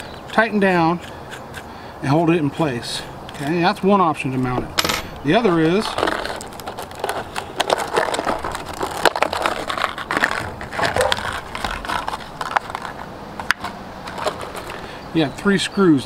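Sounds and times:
plastic blister pack crinkling: 5.4 - 13.1.

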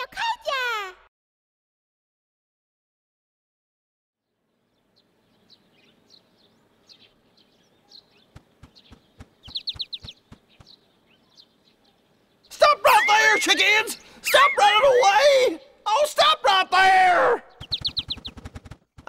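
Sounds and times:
bird chirps and tweets: 4.2 - 13.6, 17.5 - 18.6
person shouting: 12.6 - 17.5.

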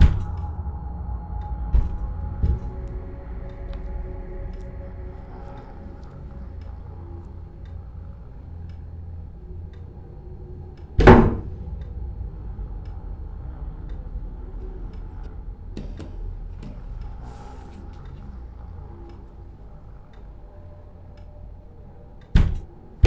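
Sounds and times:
door banging: 0.0 - 0.4, 11.0 - 11.6, 22.4 - 22.7
low steady hum: 0.0 - 23.0.

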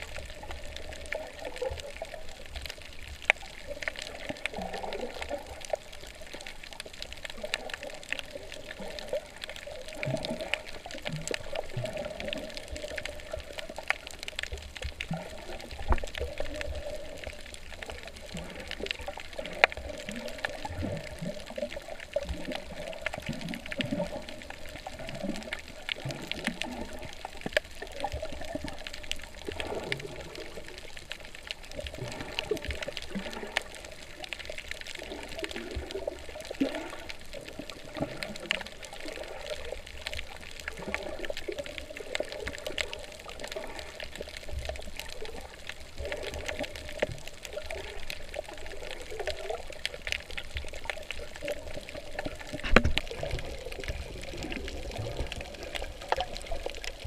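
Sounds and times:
seawater sloshing and gurgling: 0.0 - 57.0
small clicks: 49.8 - 57.0.

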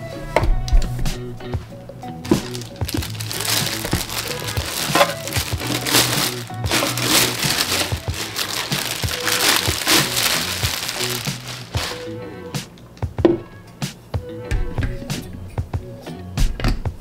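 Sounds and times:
background music: 0.0 - 17.0
plastic bag crinkling: 2.2 - 12.1.

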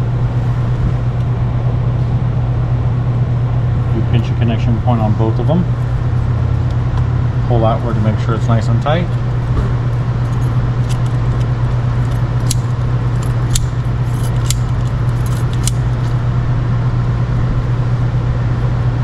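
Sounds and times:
steady low hum: 0.0 - 19.0
pliers twisting wire: 10.2 - 16.2.

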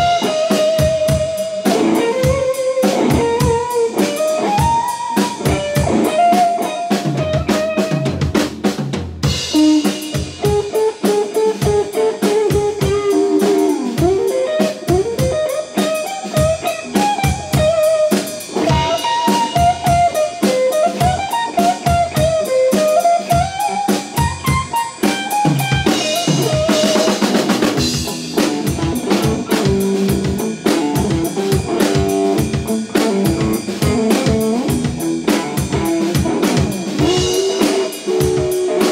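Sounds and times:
electric guitar lead melody: 0.0 - 8.2, 9.3 - 38.9
drum kit: 0.0 - 38.9
cymbals: 9.2 - 38.9.

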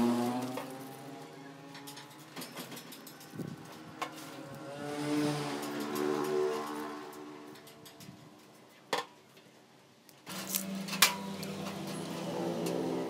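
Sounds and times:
metal clinks and clanks: 0.4 - 4.7, 5.4 - 8.7, 10.3 - 13.0.

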